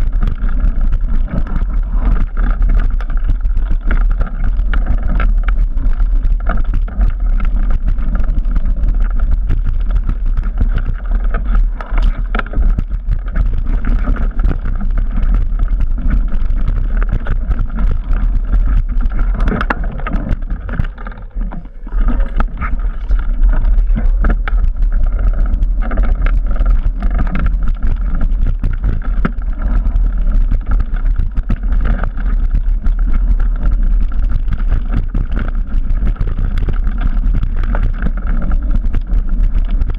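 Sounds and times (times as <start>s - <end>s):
bike rattling over roots: 0.0s - 39.9s
bike tyres on dirt: 0.0s - 39.9s
wind rumble on microphone: 0.0s - 39.9s.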